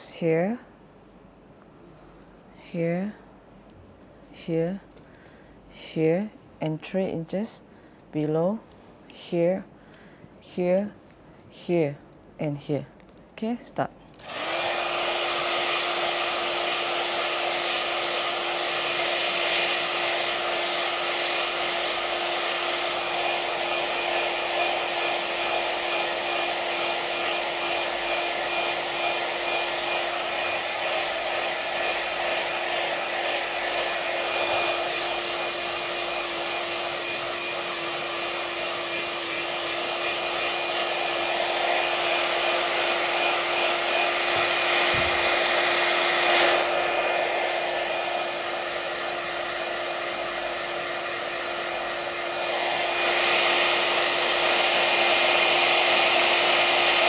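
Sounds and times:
handheld device fan whirring: 0:14.2 - 0:57.0.

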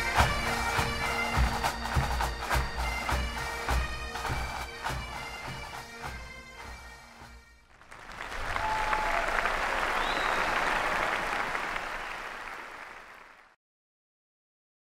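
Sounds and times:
crowd applauding: 0:07.7 - 0:13.6.

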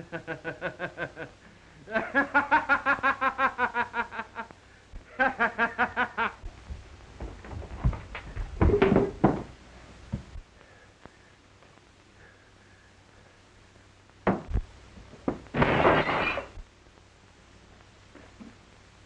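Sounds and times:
man laughing: 0:00.0 - 0:06.4.

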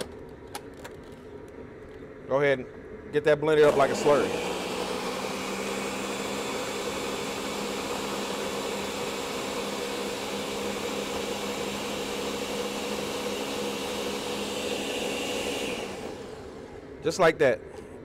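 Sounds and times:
blender motor running: 0:03.6 - 0:16.8.

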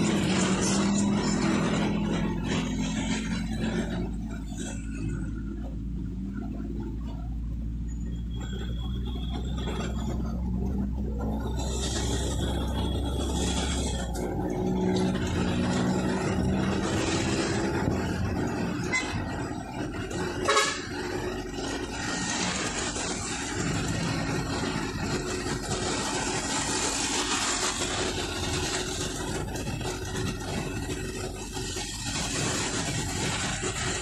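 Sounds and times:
vehicle engine and road noise: 0:00.0 - 0:34.0
car horn honk: 0:20.4 - 0:20.9.

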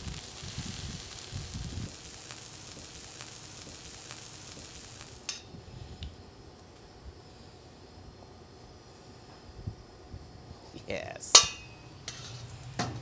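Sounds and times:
food sizzling in a frying pan: 0:00.0 - 0:05.5.

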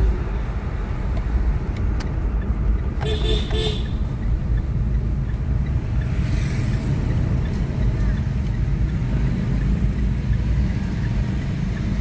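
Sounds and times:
car engine and tyres rumbling: 0:00.0 - 0:12.0
car horn toots: 0:03.0 - 0:04.0.

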